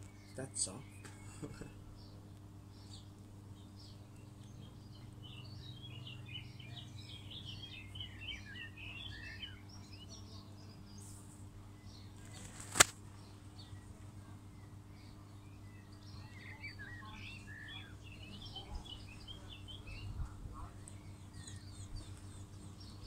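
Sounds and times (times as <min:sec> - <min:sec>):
small birds chirping: 0:00.0 - 0:23.0
sharp click: 0:12.5 - 0:13.0.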